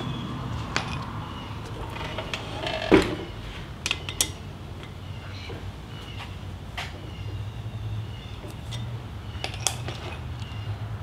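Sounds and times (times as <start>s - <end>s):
metal tool clicks and knocks: 3.8s - 5.0s, 8.4s - 10.5s.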